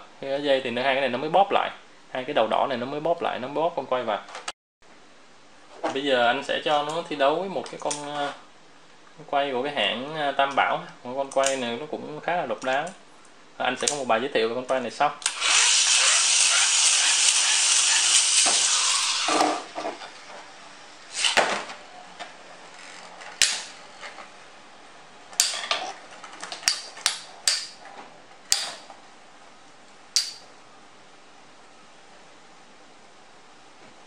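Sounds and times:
spinning tops whirring hiss: 15.2s - 21.6s.

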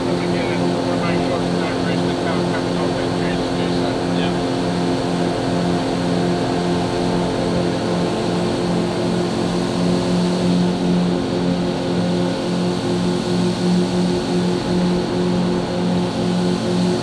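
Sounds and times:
outboard motor drone: 0.0s - 17.0s
wind: 0.0s - 17.0s.

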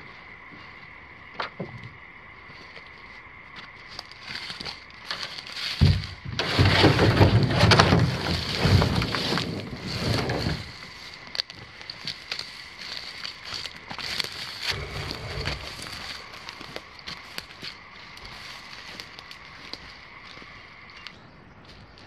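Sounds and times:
hull scraping against grass and branches: 3.9s - 21.1s
brush rustling and clicking: 4.4s - 17.3s.

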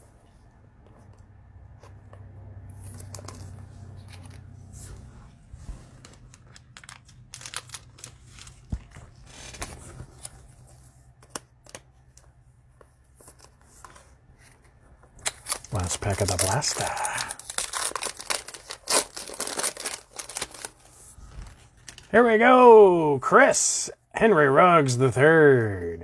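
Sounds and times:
cards being handled: 0.9s - 5.1s, 5.9s - 22.2s
foil wrapper tearing and crinkling: 6.6s - 8.7s, 15.2s - 20.8s.

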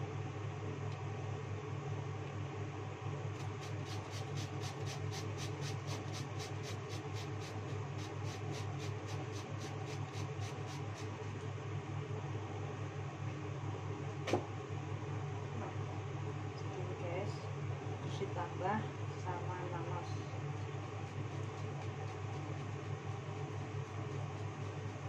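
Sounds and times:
steady low hum: 0.0s - 25.0s
cucumber rasping on metal grater: 3.6s - 11.0s.

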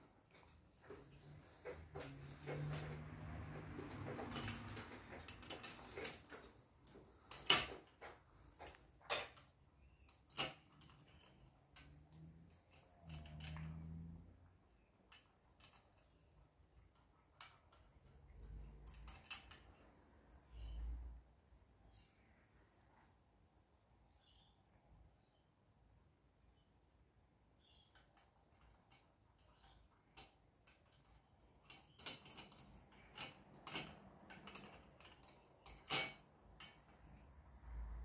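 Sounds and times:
cat eating from metal bowl: 0.3s - 20.1s, 28.1s - 38.0s.

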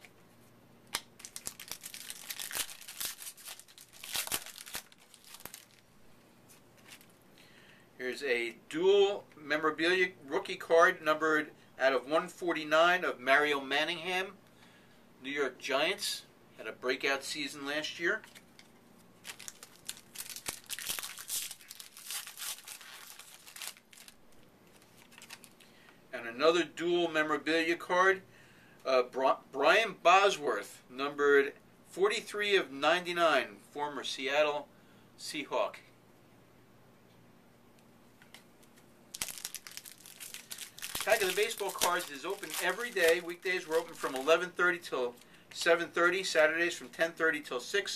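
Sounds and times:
foil wrapper crinkling and tearing: 0.9s - 5.8s, 19.2s - 25.7s, 39.1s - 44.4s.

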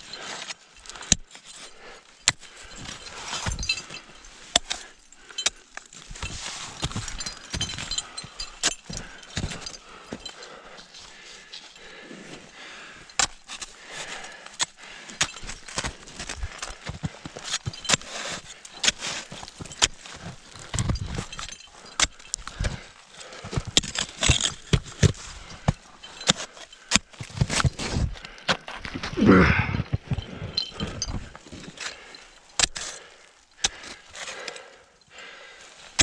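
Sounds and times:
ice axes and crampons clinking: 0.0s - 36.0s.

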